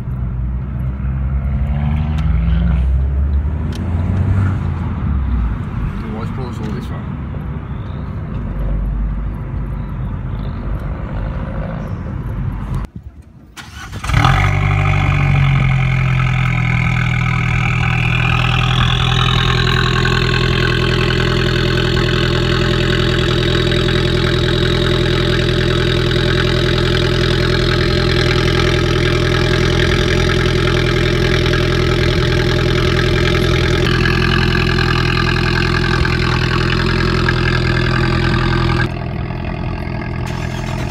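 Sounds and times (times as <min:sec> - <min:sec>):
road and engine noise in car: 0:00.0 - 0:40.9
car engine starting and idling: 0:12.3 - 0:40.9.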